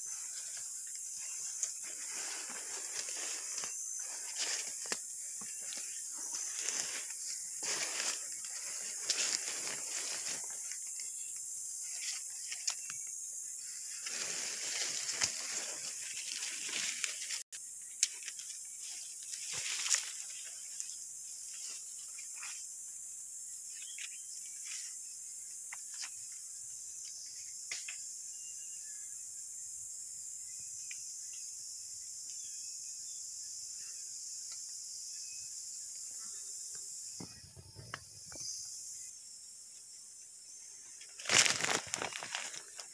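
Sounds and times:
rustling: 0.0 - 10.8, 41.2 - 42.9
high-pitched insect chorus: 0.0 - 42.9.

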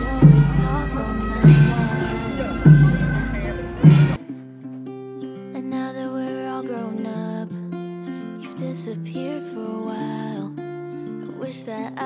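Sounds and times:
loud dense music: 0.0 - 4.2
soft music with held notes: 0.0 - 12.0.

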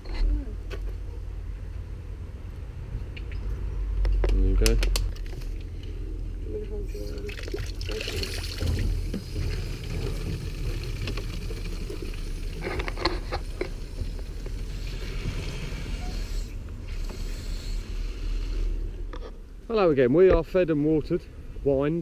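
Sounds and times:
water running into plastic bottle: 7.2 - 15.0.

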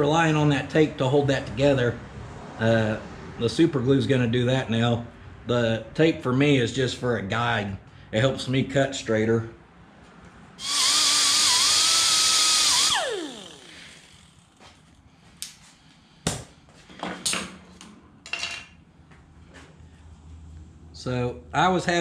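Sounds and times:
air cut-off tool whistling: 10.6 - 14.4.

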